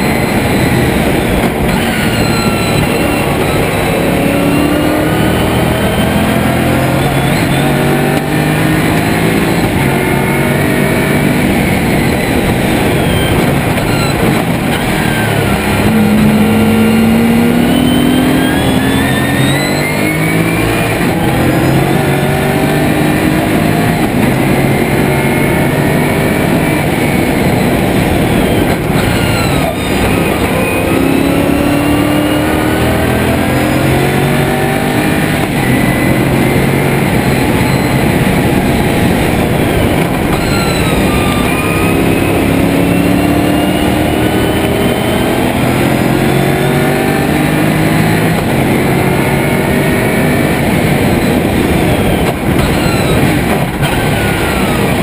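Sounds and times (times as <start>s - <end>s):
race car engine accelerating: 0.0s - 55.0s
wind and tyre noise: 0.0s - 55.0s.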